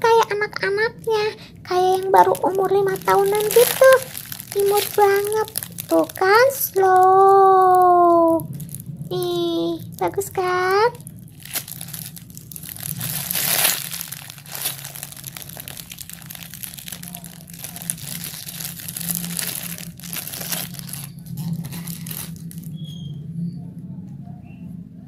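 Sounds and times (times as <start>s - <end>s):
plastic wrapper crinkling: 0.0s - 23.2s.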